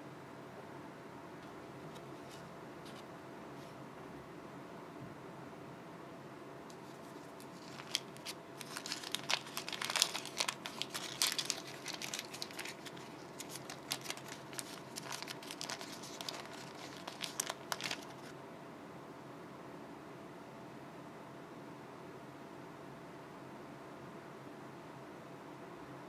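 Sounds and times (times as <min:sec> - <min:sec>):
paper cake liner crinkling: 0:06.7 - 0:18.3.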